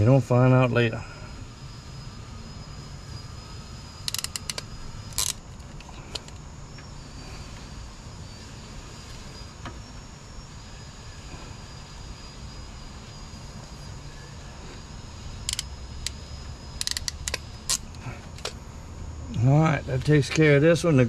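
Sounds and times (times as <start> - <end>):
steady low hum: 0.0 - 21.0
thin high whine: 0.0 - 21.0
wire crimper clicks: 4.0 - 6.4, 15.4 - 16.2, 16.8 - 18.6.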